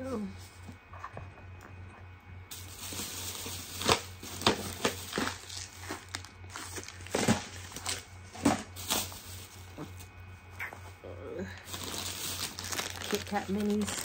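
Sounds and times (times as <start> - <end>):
plastic packaging crinkling: 2.5 - 10.2, 11.6 - 14.0.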